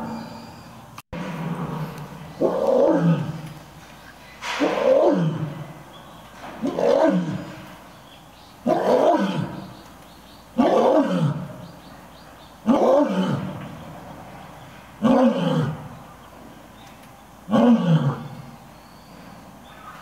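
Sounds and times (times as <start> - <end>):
lioness roaring: 1.2 - 3.6, 4.4 - 5.9, 6.6 - 7.7, 8.6 - 9.8, 10.6 - 11.8, 12.6 - 13.8, 15.0 - 16.0, 17.5 - 18.6.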